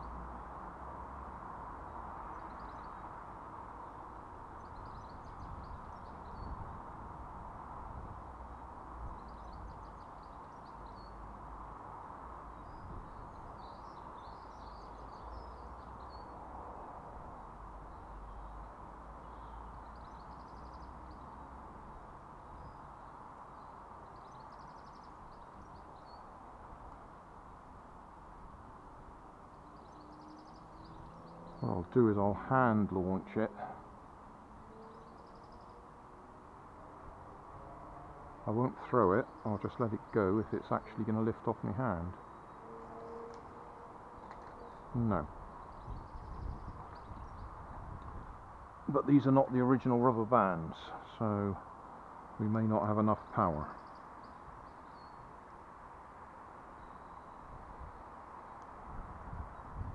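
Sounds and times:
songbird singing trilled phrases: 0:02.2 - 0:03.2, 0:04.5 - 0:06.8, 0:09.1 - 0:11.3, 0:12.5 - 0:16.4, 0:17.8 - 0:21.5, 0:22.4 - 0:26.3, 0:29.5 - 0:33.9, 0:34.7 - 0:35.9, 0:38.5 - 0:48.3, 0:52.4 - 0:55.3.

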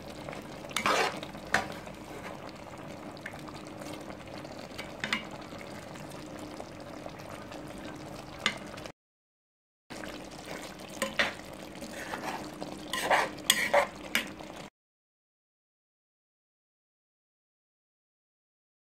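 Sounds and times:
pot simmering and bubbling: 0:00.0 - 0:08.9, 0:09.9 - 0:14.7
spoon scraping a pot: 0:00.7 - 0:02.5, 0:11.0 - 0:14.3.

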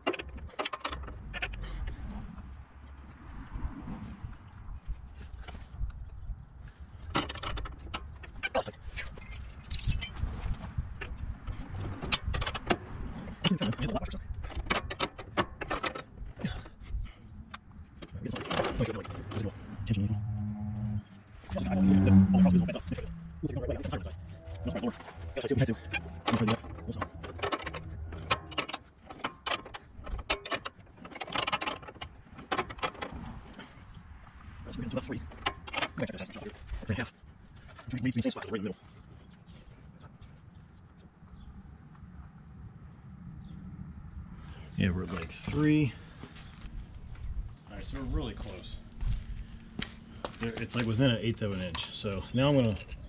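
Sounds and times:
wrench clinking on metal: 0:09.2 - 0:10.2, 0:35.8 - 0:36.5, 0:51.0 - 0:53.0.

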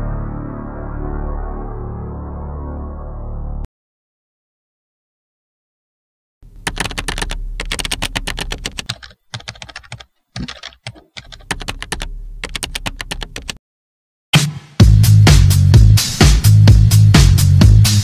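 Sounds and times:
keyboard typing clicks: 0:06.5 - 0:13.6.

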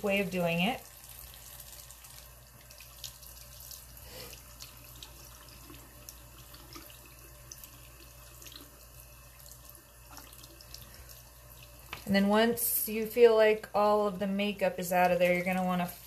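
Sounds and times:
faucet running into sink: 0:00.0 - 0:12.2.

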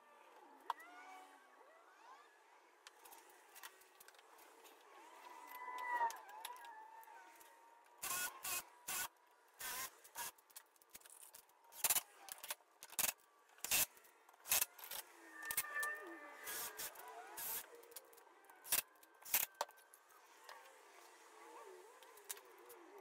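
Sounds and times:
faint squeak: 0:15.2 - 0:17.5.

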